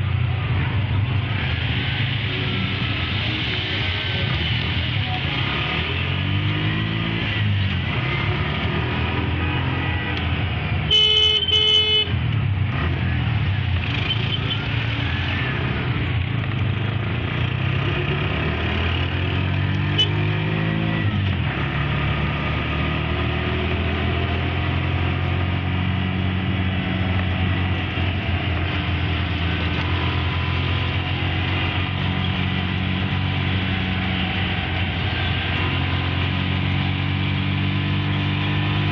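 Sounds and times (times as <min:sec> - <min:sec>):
road traffic noise: 0:00.0 - 0:38.9
vehicle horn honks: 0:10.9 - 0:12.2, 0:19.9 - 0:20.2.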